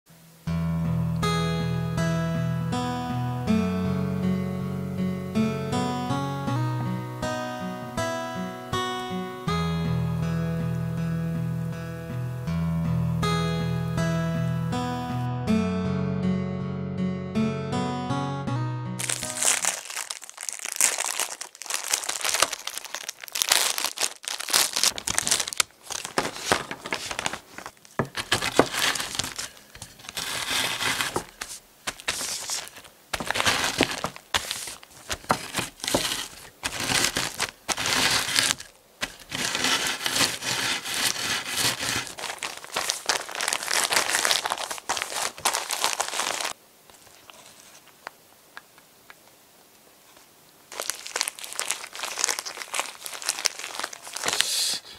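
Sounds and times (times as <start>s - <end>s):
cookies crunching: 19.0s - 48.0s, 50.7s - 54.4s
plastic bag crinkling: 19.0s - 48.1s, 50.7s - 54.5s.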